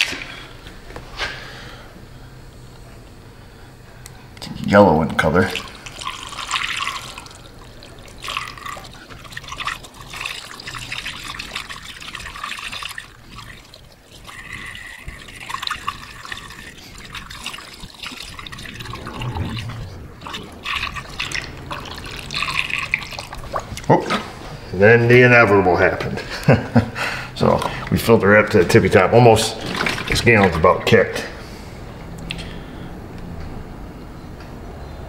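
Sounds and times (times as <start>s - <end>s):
liquid pouring through funnel: 5.3s - 23.9s, 29.6s - 30.6s.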